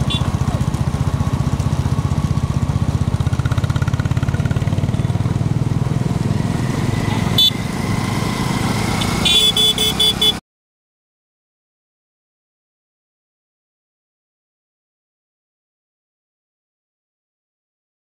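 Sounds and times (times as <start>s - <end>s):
horn short beeps: 0.0s - 0.4s, 7.3s - 7.6s, 9.0s - 10.4s
vehicle engine running: 0.0s - 10.4s.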